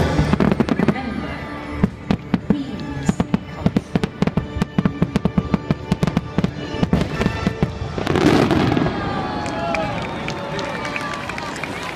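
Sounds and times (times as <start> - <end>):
fireworks bursting: 0.0 - 10.6
music: 0.0 - 11.0.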